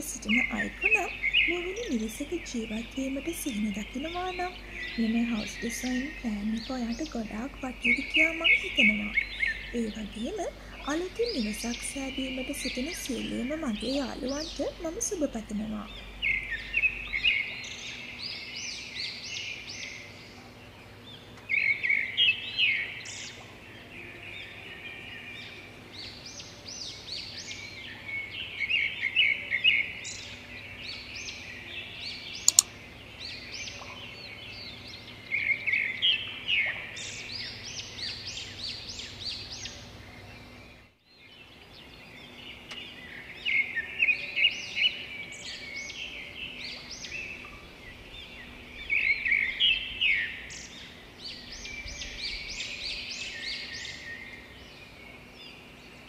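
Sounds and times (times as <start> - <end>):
faint steady background: 0.0 - 18.2, 32.4 - 33.2
small birds chirping: 0.0 - 56.0
sharp click: 32.5 - 32.7.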